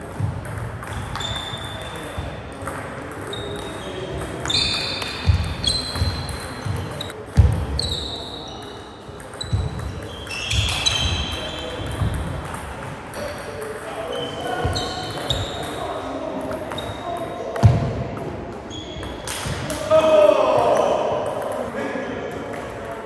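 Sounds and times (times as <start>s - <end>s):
shoe squeaks: 0.9s - 2.2s, 3.2s - 12.1s, 14.0s - 16.0s, 16.6s - 17.5s, 18.7s - 19.3s.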